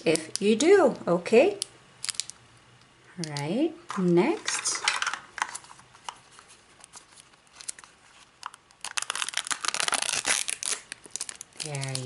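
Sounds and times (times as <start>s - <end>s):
wrapper crinkling and tearing: 2.0s - 2.4s, 6.8s - 12.0s.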